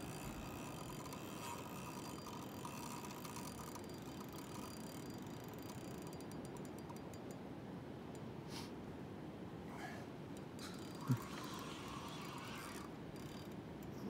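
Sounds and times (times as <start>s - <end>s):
fishing reel clicking: 0.0s - 7.4s, 10.4s - 14.0s
faint outdoor background hiss: 0.0s - 14.0s.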